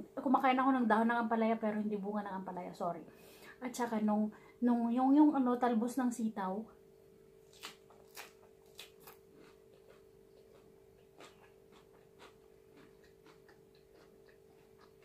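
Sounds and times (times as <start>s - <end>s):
steady low hum: 0.0s - 15.0s
crisp chewing of lettuce: 7.4s - 15.0s.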